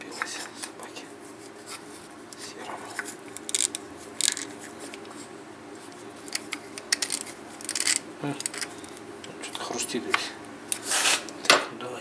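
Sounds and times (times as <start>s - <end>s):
steady low hum: 0.0s - 12.0s
metallic clicks and scrapes: 6.3s - 8.7s.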